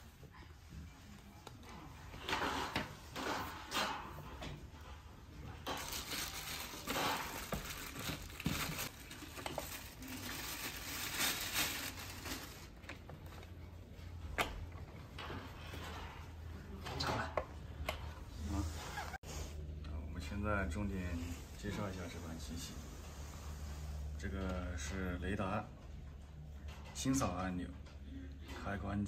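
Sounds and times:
plastic bag rustling and crinkling: 5.4 - 13.7.

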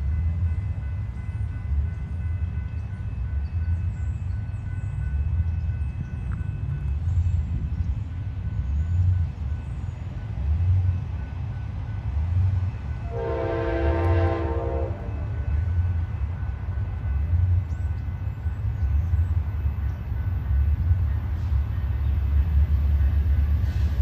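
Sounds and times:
train horn blast: 13.0 - 15.4.

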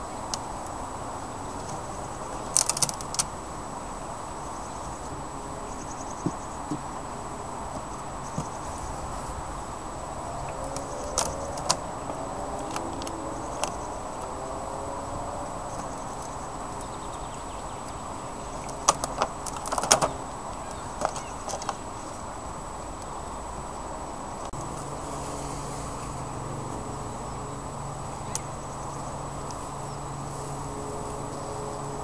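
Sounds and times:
bees buzzing: 0.0 - 32.0.

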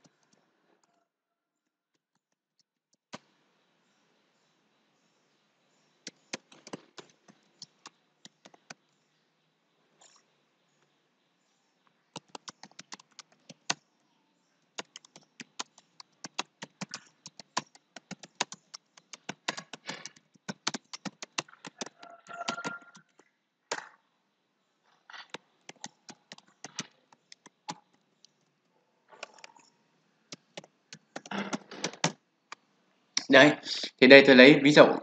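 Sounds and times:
keyboard typing clicks: 12.2 - 13.8, 14.8 - 23.9, 25.2 - 28.0, 29.2 - 29.7, 30.3 - 32.2.

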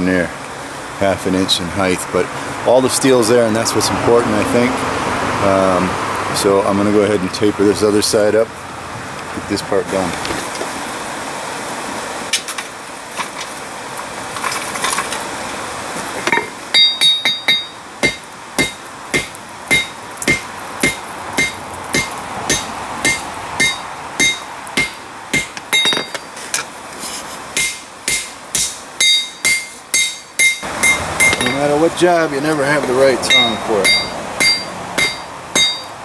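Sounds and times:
hammer striking steel on anvil: 16.3 - 26.3, 27.6 - 31.8, 32.8 - 36.0.

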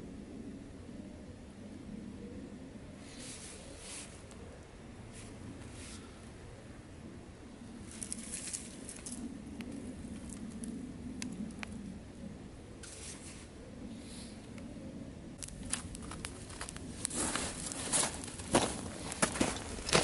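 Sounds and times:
dry twigs rustling and clicking: 7.8 - 11.8, 15.4 - 20.0.

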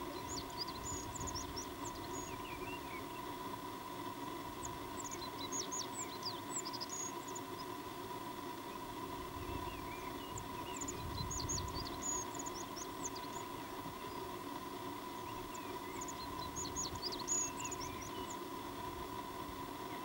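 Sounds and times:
faint steady hum: 0.0 - 20.0
songbird chirping: 15.1 - 18.4.

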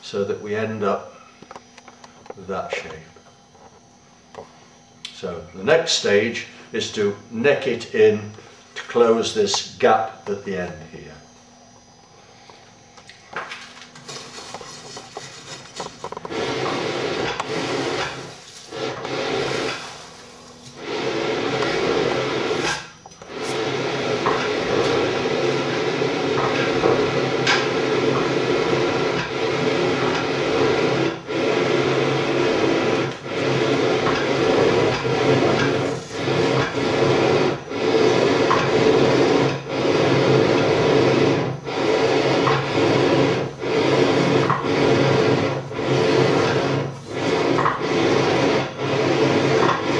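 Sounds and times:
forge blower rushing air: 0.0 - 49.9.

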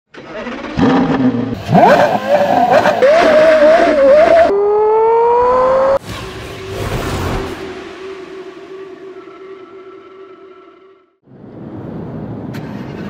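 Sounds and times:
sports car engine revving: 0.6 - 6.0.

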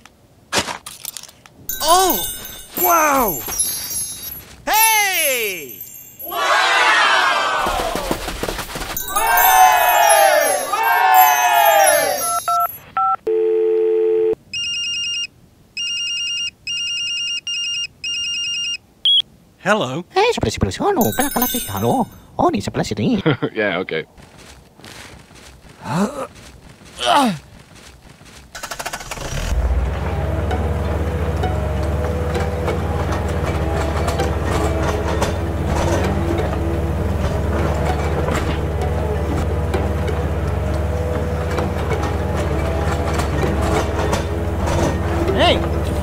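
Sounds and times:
phone ringtone: 1.7 - 4.5, 9.0 - 18.8, 21.0 - 22.1.

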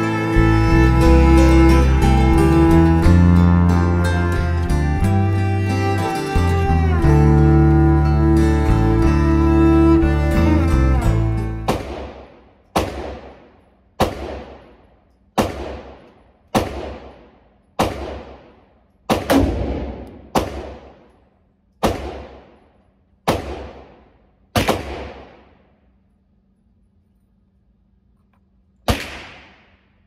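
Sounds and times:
music: 0.0 - 11.8.

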